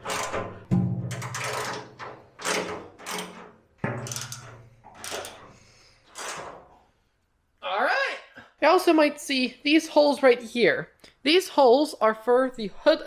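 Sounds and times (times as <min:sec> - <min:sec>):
power tool driving bolts: 0:00.0 - 0:06.7.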